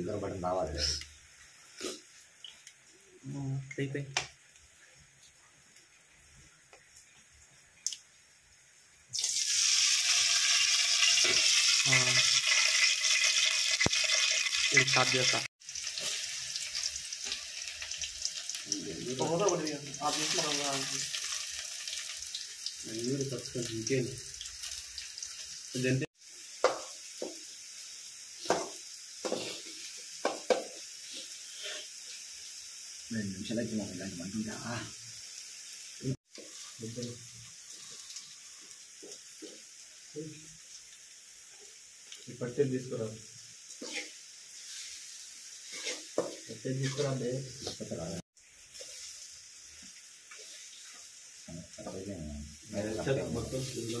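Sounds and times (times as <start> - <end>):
oil sizzling in a hot pan: 0.0 - 54.0
metal spoon scraping a pan: 31.1 - 32.0, 43.8 - 47.2.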